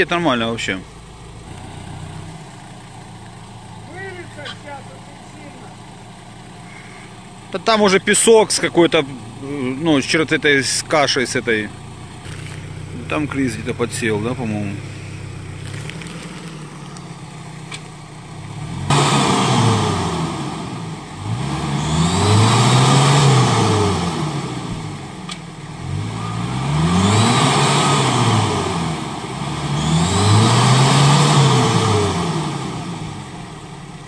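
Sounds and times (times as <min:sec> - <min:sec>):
truck engine revving hard: 0:18.5 - 0:25.1, 0:25.7 - 0:33.5.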